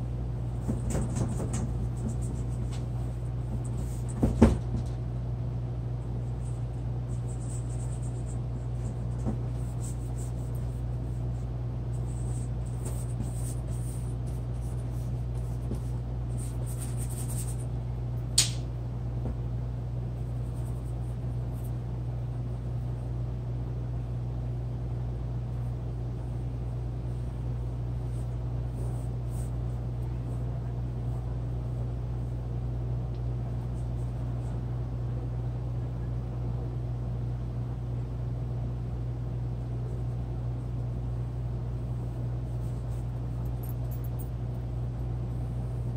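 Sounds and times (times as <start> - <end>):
sharp click: 18.4 - 18.7.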